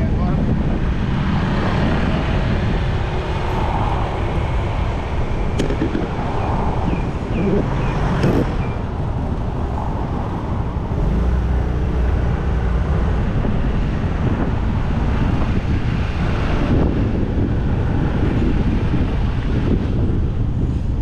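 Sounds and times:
road and traffic rumble: 0.0 - 21.0
wind buffeting microphone: 0.0 - 21.0.

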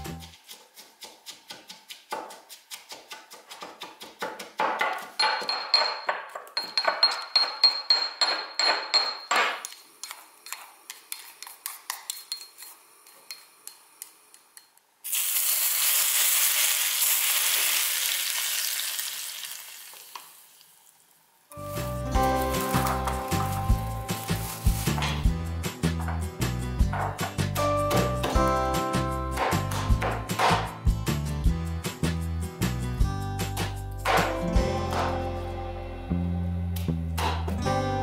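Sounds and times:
pestle knocking in mortar: 1.0 - 9.8, 24.9 - 28.4, 29.3 - 30.8, 34.0 - 35.2
hot oil sizzling: 15.0 - 25.4.

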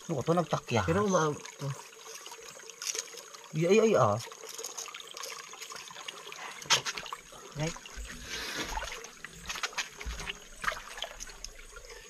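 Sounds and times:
stream water trickling and splashing: 0.0 - 12.0.

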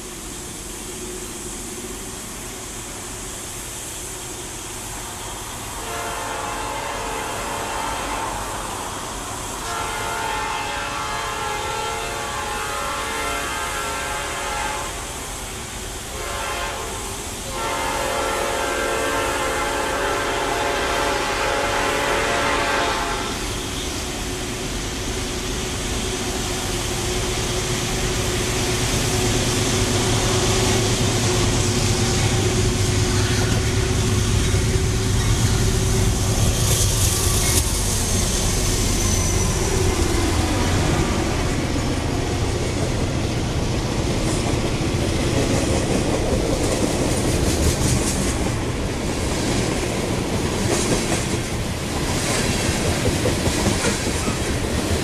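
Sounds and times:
diesel locomotive engine whine: 0.0 - 55.0
train wheels clacking over rail joints: 41.8 - 55.0.

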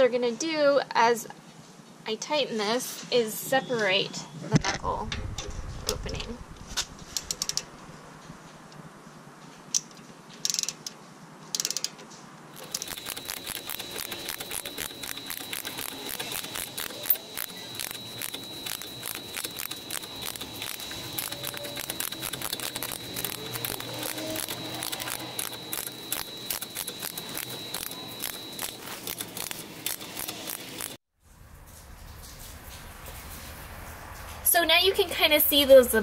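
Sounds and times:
ratchet wrench clicking: 10.4 - 12.0, 12.6 - 31.0.

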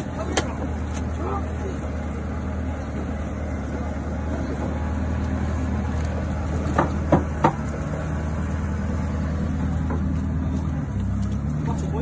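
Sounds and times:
forklift engine running: 0.0 - 12.0
sharp knocks: 6.7 - 7.7.

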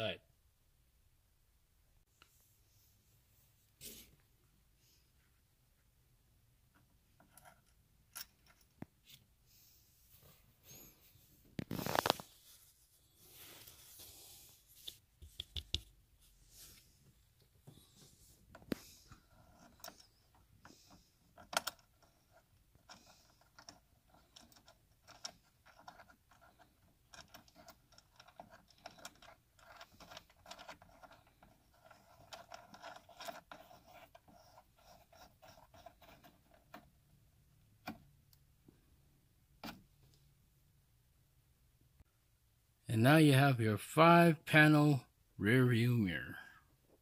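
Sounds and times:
fingers rubbing plastic: 18.6 - 36.9.

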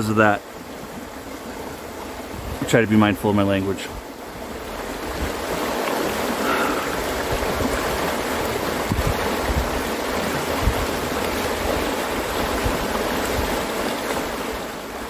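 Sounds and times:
river water rushing over rapids: 0.0 - 15.0.

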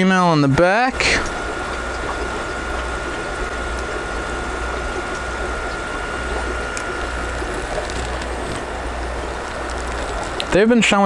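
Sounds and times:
faint high whine: 0.0 - 11.0
low pump hum: 0.0 - 11.0
water bubbling and splashing: 0.9 - 10.6.

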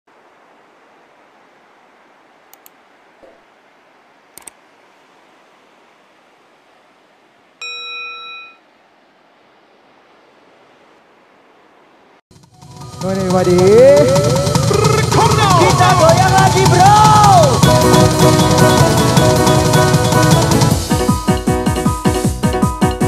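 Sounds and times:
faint steady hiss: 0.1 - 12.2
notification bell ding: 7.6 - 8.6.

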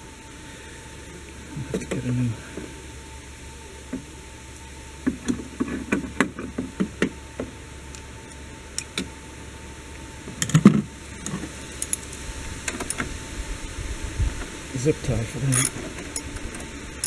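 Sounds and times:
hand tools clicking and knocking: 15.5 - 16.3.

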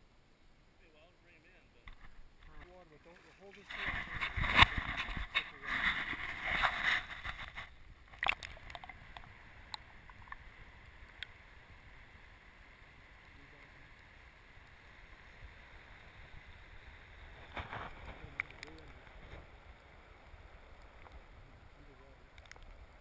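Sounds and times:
muffled underwater current: 1.8 - 19.8
river water splashing: 2.9 - 23.0
faint clicks: 8.1 - 11.4, 17.8 - 19.2, 20.7 - 21.2, 22.3 - 22.8.

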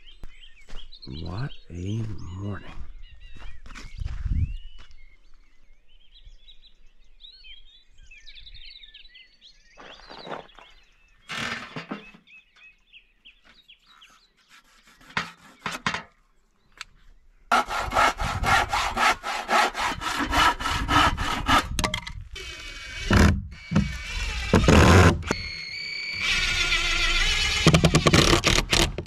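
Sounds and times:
hand saw cutting wood: 14.0 - 16.1, 17.5 - 29.0.

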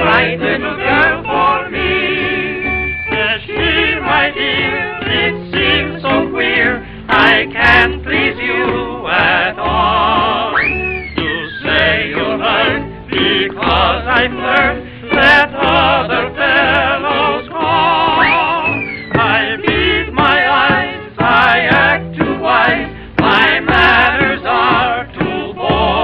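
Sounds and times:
orchestra accompaniment: 0.0 - 9.0
singer with wavering voice: 13.4 - 26.0.

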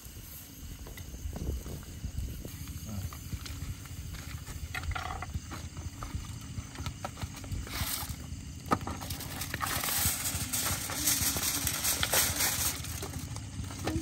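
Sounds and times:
hiss over coals: 0.0 - 14.0
crackling and knocks: 3.1 - 14.0.

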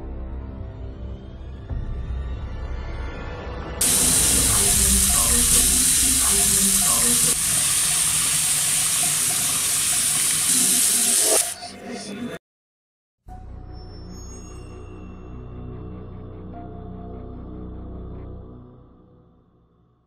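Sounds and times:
water running from tap: 3.8 - 11.6.

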